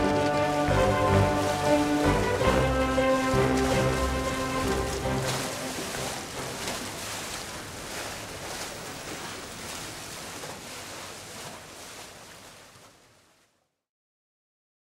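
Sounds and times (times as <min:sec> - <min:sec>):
steady rushing noise: 0:00.0 - 0:10.9.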